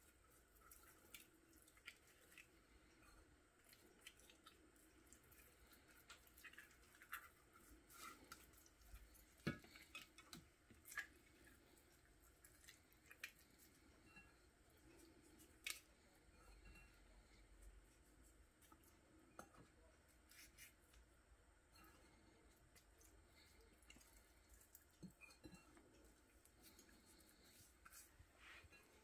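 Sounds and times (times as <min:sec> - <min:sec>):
hands rubbing wet fish: 0:00.0 - 0:14.0.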